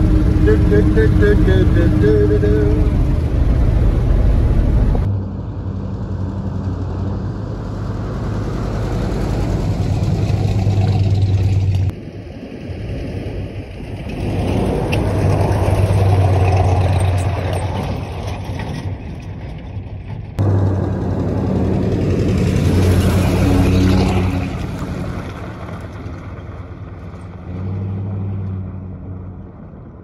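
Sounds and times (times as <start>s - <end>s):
pickup truck engine running: 0.0s - 5.1s, 20.4s - 24.0s.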